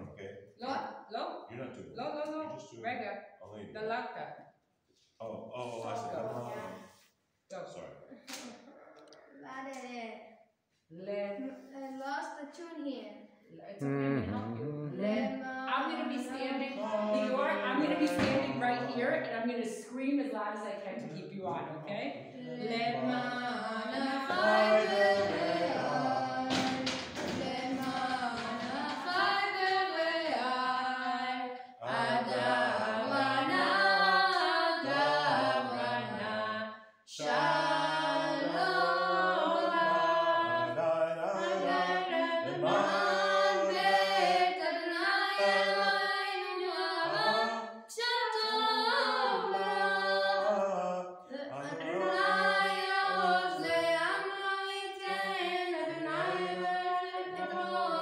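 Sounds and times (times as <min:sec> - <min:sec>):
boy chanting prayers: 0:05.6 - 0:06.9, 0:13.8 - 0:15.0, 0:22.4 - 0:26.8.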